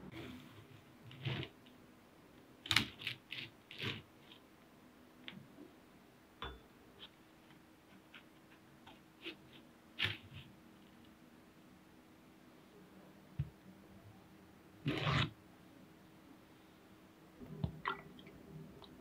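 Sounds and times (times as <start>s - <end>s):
spatula scraping under cookies: 0.1s - 1.6s, 3.0s - 4.4s, 14.8s - 15.3s.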